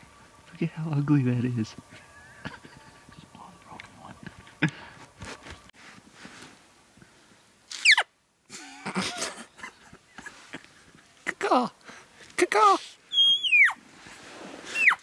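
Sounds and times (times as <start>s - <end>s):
elk call squeal: 7.8s - 8.1s, 13.1s - 13.8s, 14.7s - 15.0s.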